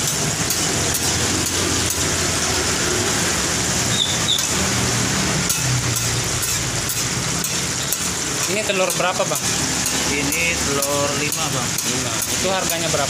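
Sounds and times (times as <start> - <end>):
food sizzling in oil: 0.0 - 13.0.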